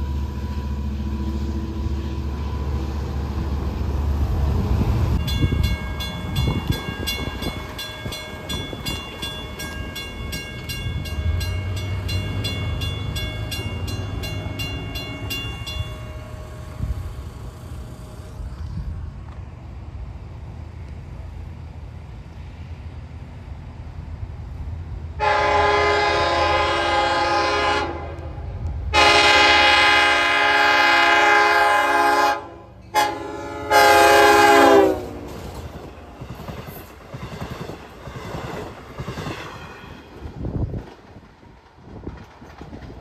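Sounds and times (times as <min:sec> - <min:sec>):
train rumbling and wheel clatter: 0:00.0 - 0:43.0
train horn blasts: 0:25.2 - 0:35.3.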